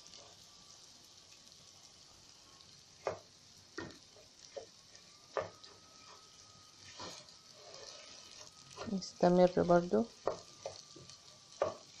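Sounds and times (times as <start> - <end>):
rice sizzling in oil: 0.0 - 12.0
wooden spoon scraping pan: 4.5 - 9.2.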